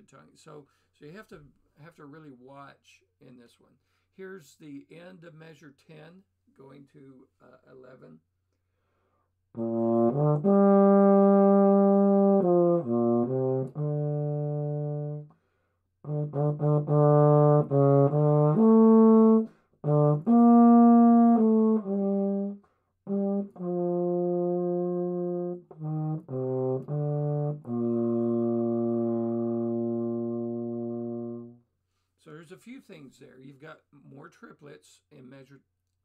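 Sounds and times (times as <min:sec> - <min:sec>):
solo euphonium melody: 0:09.6 - 0:15.3, 0:16.0 - 0:31.6.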